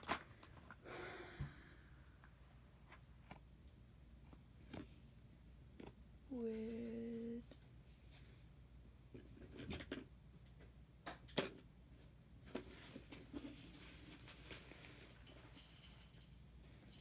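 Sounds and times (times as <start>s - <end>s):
person humming: 6.3s - 7.4s.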